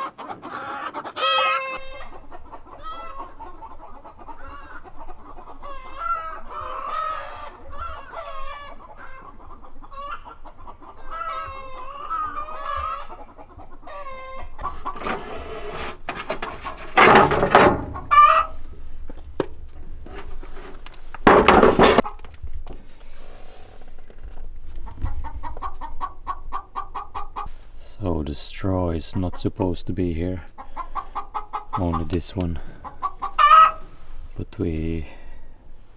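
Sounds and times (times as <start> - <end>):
chicken squawk: 0.0 - 15.7, 17.8 - 18.7, 30.6 - 32.1, 32.7 - 34.0
chickens clucking: 0.0 - 18.8, 19.6 - 23.0, 23.6 - 35.1.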